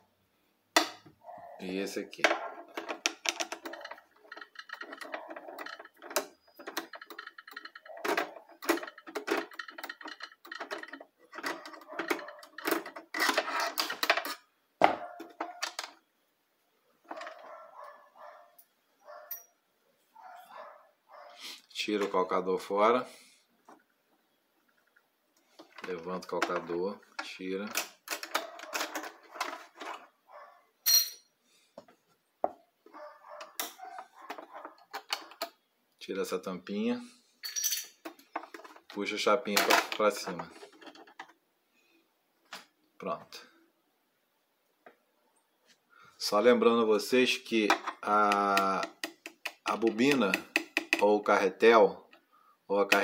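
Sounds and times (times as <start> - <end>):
small metal clicks and rattles: 2.5 - 14.4, 24.7 - 30.0, 33.2 - 35.6, 37.6 - 41.4, 47.7 - 51.1.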